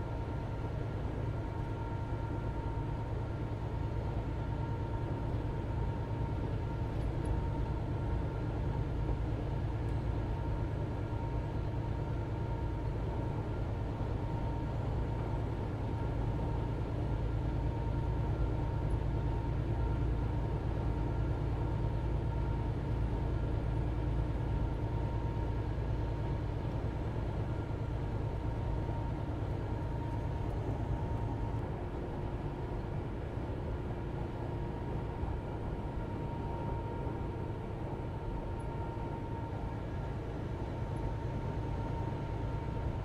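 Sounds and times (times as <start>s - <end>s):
diesel truck engine drone: 0.0s - 43.0s.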